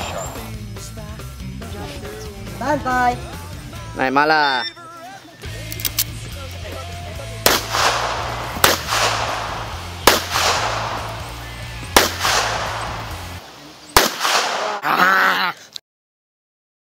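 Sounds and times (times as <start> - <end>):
background music with bass: 0.0 - 13.4
echoing pistol shots: 7.4 - 14.8.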